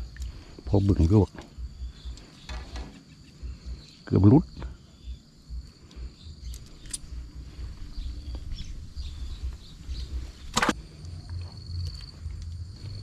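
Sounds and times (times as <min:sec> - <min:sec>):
faint insect trill: 0:00.0 - 0:13.0
wind rumbling on microphone: 0:04.6 - 0:13.0.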